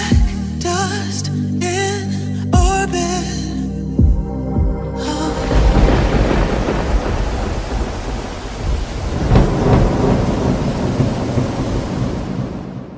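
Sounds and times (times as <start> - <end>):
music: 0.0 - 7.2
rain hiss: 5.2 - 12.9
rolling thunder: 5.3 - 12.9.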